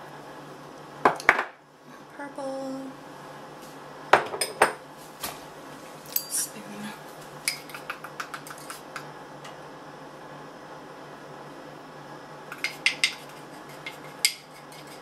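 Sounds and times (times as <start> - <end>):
spoon clinking against bowl: 7.5 - 8.8.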